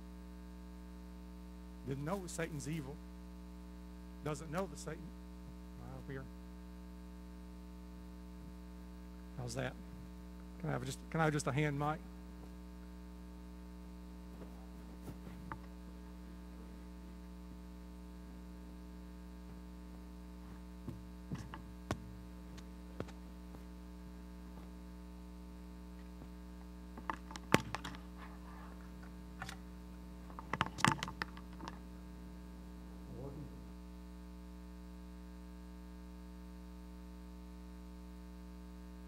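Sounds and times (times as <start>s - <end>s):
electrical mains hum: 0.0s - 39.0s
microphone handling clicks and knocks: 14.4s - 15.8s, 20.4s - 23.7s, 26.0s - 31.8s.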